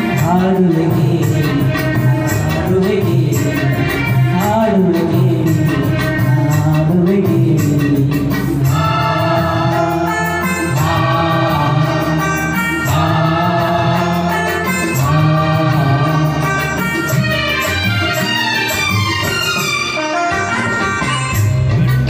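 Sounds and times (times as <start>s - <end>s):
man singing into microphone: 0.0s - 17.3s
recorded backing music: 0.0s - 22.0s.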